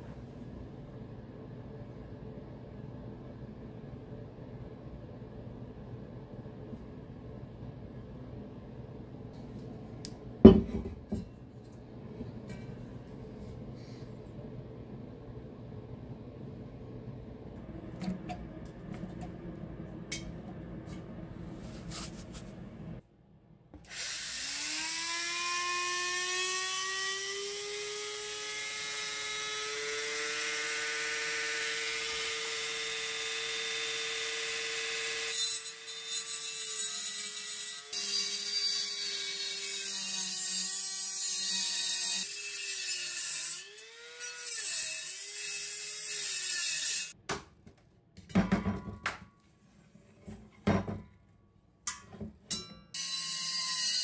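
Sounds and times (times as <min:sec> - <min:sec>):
low rumble: 0:11.9 - 0:23.0.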